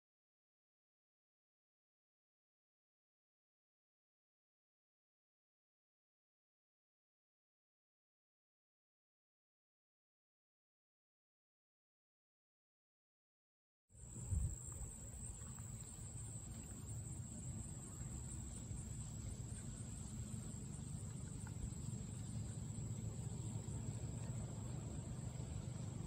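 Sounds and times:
high insect drone: 14.0s - 26.0s
wind rumble on microphone: 14.0s - 26.0s.

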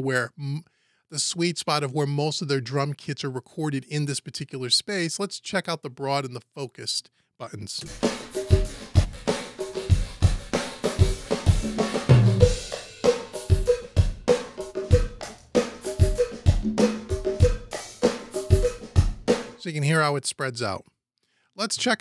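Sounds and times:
drum kit playing a groove: 7.8s - 19.7s.

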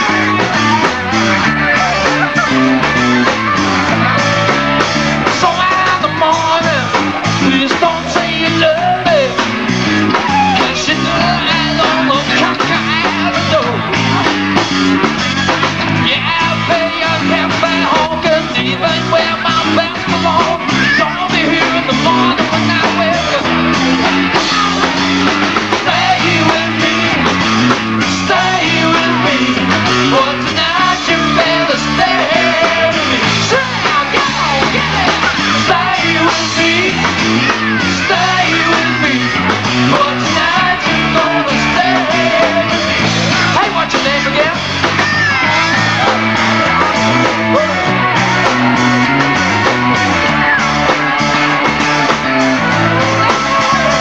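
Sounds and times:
distorted electric guitars: 0.0s - 54.0s
drum kit: 0.0s - 54.0s
man singing: 0.0s - 54.0s.

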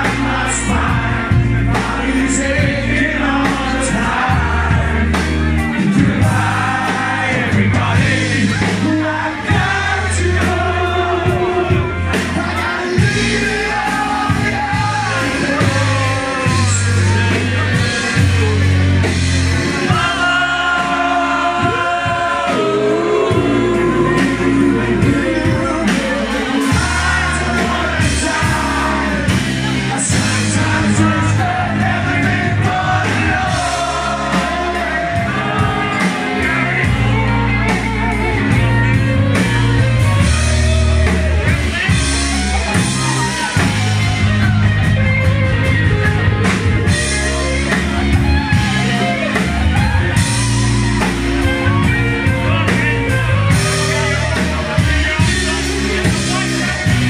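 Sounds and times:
bass line: 0.0s - 57.0s
drums: 0.0s - 57.0s
guitar: 0.0s - 57.0s
person singing: 19.6s - 38.2s.

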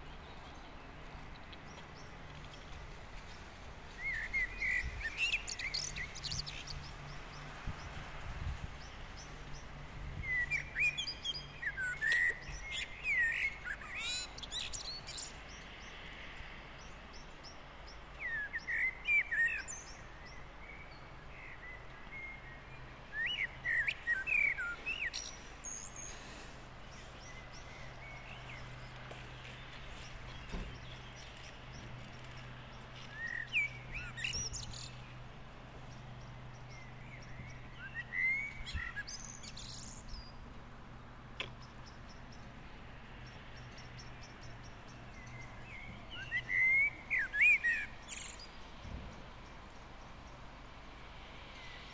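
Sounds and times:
faint outdoor background noise: 0.0s - 51.9s
songbird singing whistled phrases: 37.2s - 40.2s, 45.2s - 48.5s.

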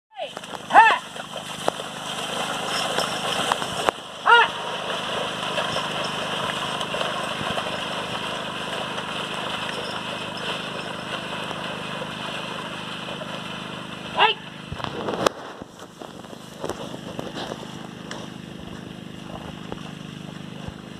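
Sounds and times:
man calling out: 0.1s - 1.1s, 4.2s - 4.6s, 14.1s - 14.5s
low hum: 0.3s - 20.9s
motor-like drone: 0.3s - 20.9s.

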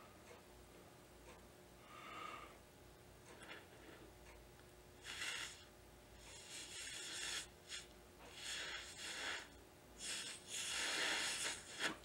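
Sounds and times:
breath hissing through blowpipe: 5.0s - 12.0s.

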